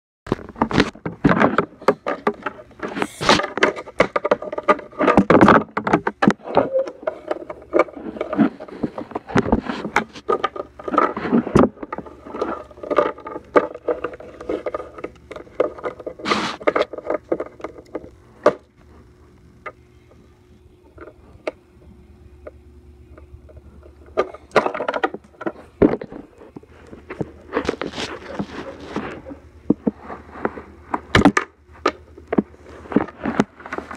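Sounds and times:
faint steady hum: 0:00.3 - 0:33.9
plastic toys knocking on wood: 0:00.4 - 0:18.6.

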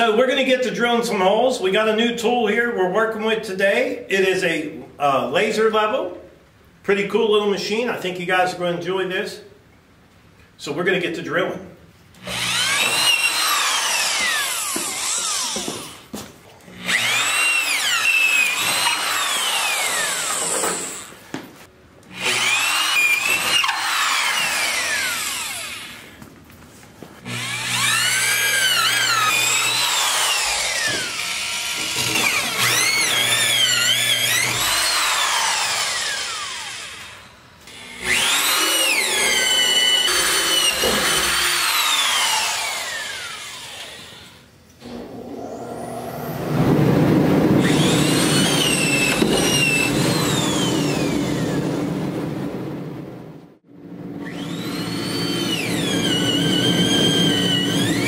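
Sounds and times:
drill boring through wood: 0:12.2 - 0:21.2, 0:22.1 - 0:26.2, 0:27.2 - 0:46.3, 0:47.6 - 0:51.9, 0:54.2 - 0:58.0.

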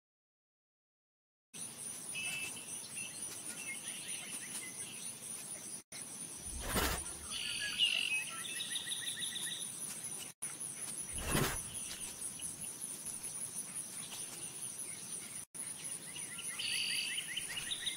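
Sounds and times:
birds chirping and trilling: 0:01.6 - 0:17.9
insect drone: 0:06.0 - 0:07.8, 0:10.5 - 0:17.9.

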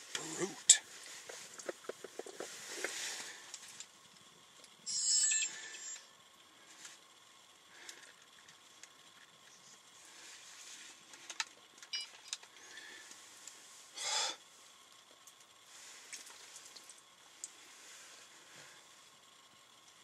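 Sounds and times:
clicks and handling noises: 0:01.1 - 0:03.9.

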